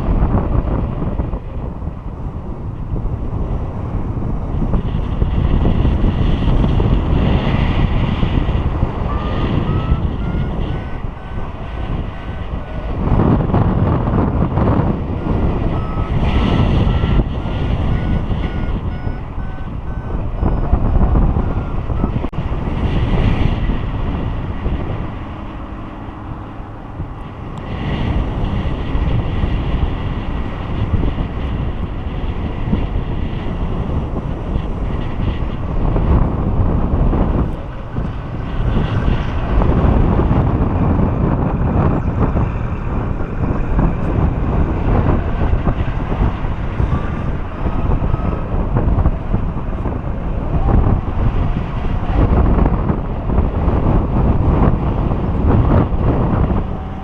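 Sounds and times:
wind rushing over microphone: 0.0 - 57.0
variometer beeping: 9.0 - 13.0, 14.9 - 22.4.

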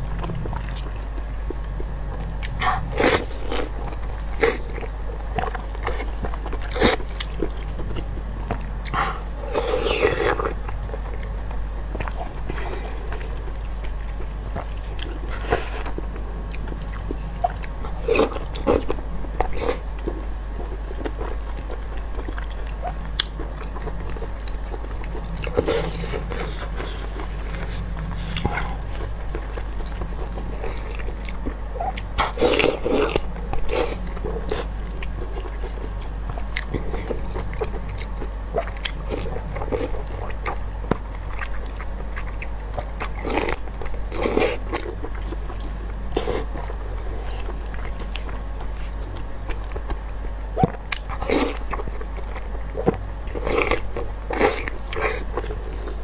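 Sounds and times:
biting and chewing sausage: 0.0 - 56.0
low hum: 0.0 - 56.0.

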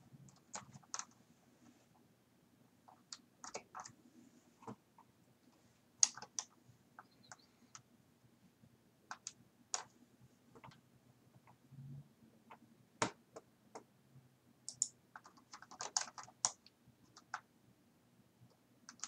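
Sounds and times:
mouse and keyboard clicks: 14.7 - 17.5.

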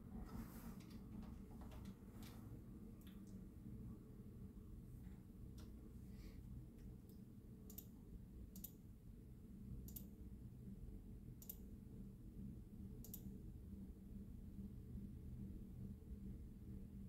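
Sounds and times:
computer mouse clicking: 6.8 - 8.8, 9.8 - 10.1, 11.4 - 11.7, 13.0 - 13.3.

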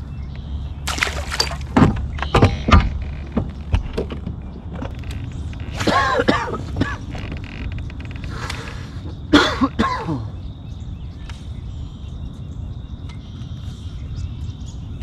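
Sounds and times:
fishing gear knocking and creaking: 0.9 - 8.6.

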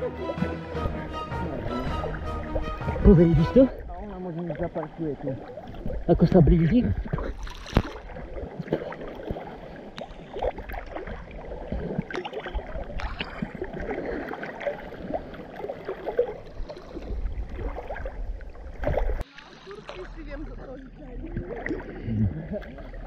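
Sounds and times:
sea water sloshing: 0.0 - 23.0
water rumbling over microphone: 0.0 - 23.0
small splashes and gurgles: 0.7 - 20.6, 21.2 - 23.0.

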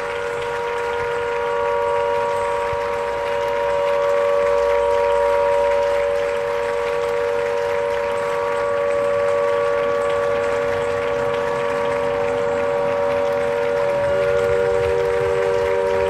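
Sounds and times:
shipyard horn blast: 0.0 - 16.0.

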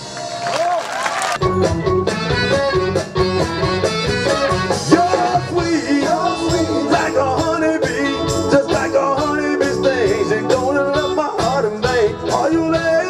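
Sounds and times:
rock band playing: 0.0 - 13.0
male vocal group singing: 4.8 - 13.0.

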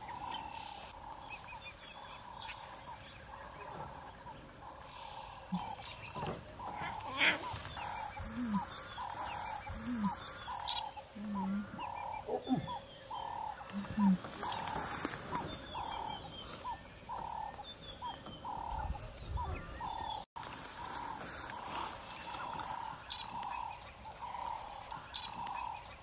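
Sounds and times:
lion cubs growling: 0.1 - 20.2.

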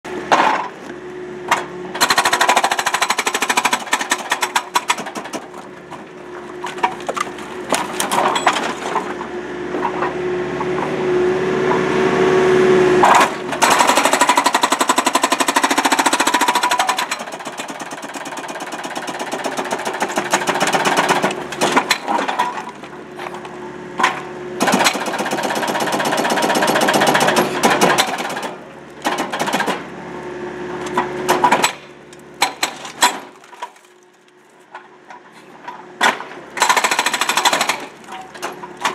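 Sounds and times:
excavator engine running: 0.1 - 33.4
hydraulic breaker hammer pounding concrete: 1.5 - 6.1, 13.0 - 23.3, 24.0 - 29.9, 30.9 - 33.7, 36.0 - 38.9.

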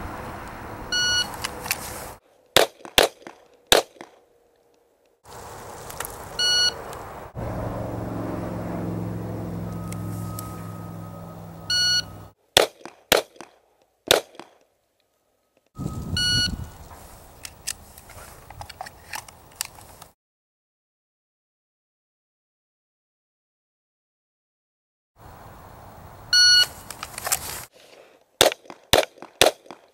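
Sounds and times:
shot timer beeps: 1.0 - 1.3, 9.7 - 12.3, 15.8 - 16.6
handgun shots: 2.6 - 4.2, 12.6 - 14.6, 28.4 - 29.9
low rumble: 7.1 - 12.3.

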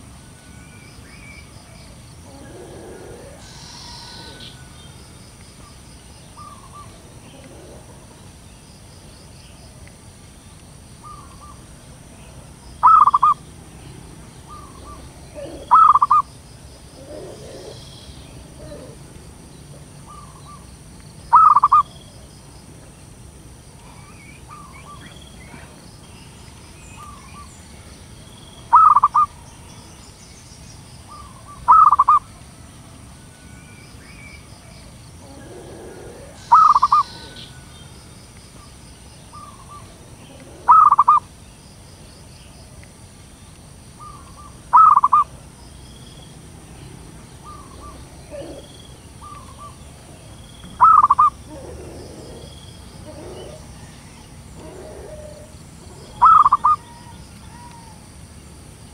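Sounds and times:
dove cooing: 2.2 - 4.7, 6.4 - 8.2, 12.2 - 13.4, 14.4 - 20.6, 21.3 - 21.9, 28.7 - 29.3, 31.1 - 32.2, 35.2 - 37.6, 39.3 - 41.2, 44.0 - 45.3, 47.4 - 50.0, 50.8 - 58.0
faint calls of another dove: 2.3 - 4.7, 12.8 - 13.4, 14.5 - 16.2, 21.3 - 21.8, 28.7 - 29.3, 31.1 - 32.2, 35.2 - 37.6, 39.4 - 41.2, 44.0 - 45.2, 50.8 - 52.4, 53.0 - 58.0.

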